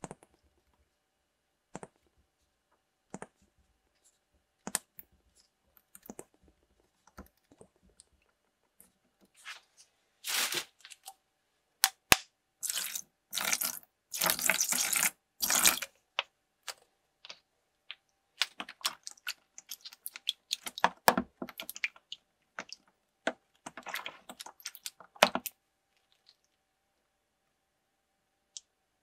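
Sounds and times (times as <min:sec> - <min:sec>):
hand stirring bubbly liquid: 0:12.6 - 0:15.9, 0:16.7 - 0:26.6.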